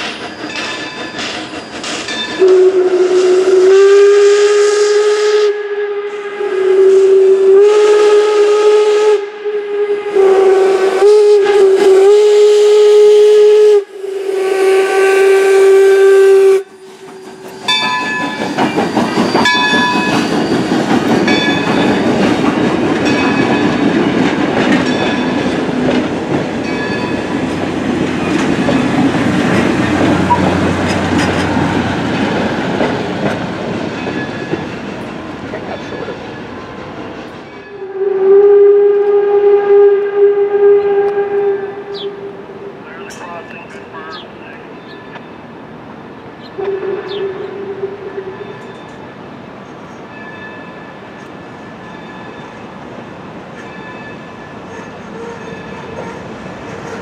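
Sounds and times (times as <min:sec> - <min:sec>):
wheels clicking over rail joints: 0:00.0 - 0:02.6, 0:17.0 - 0:37.4
train rumbling past: 0:00.0 - 0:57.0
steam whistle blasts: 0:02.3 - 0:20.8, 0:29.5 - 0:31.6, 0:37.7 - 0:42.7, 0:46.6 - 0:48.8.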